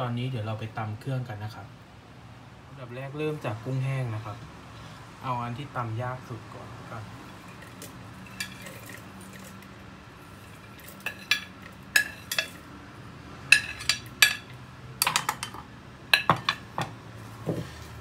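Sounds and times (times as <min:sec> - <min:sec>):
metal spoon clinking on a plate: 0:07.4 - 0:09.7, 0:10.4 - 0:12.6, 0:13.5 - 0:16.8.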